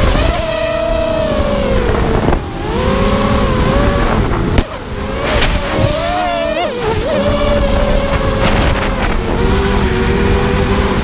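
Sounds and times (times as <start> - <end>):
drone motors whining: 0.0 - 11.0
wind rushing: 3.8 - 9.8.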